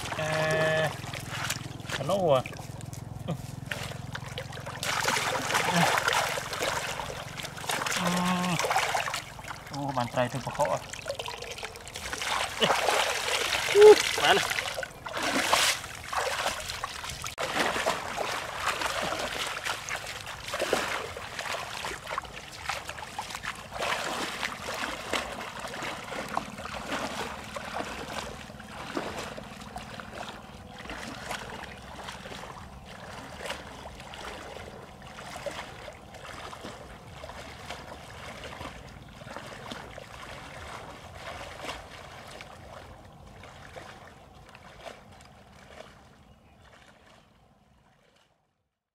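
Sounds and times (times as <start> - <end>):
person wading through water: 0.0 - 48.6.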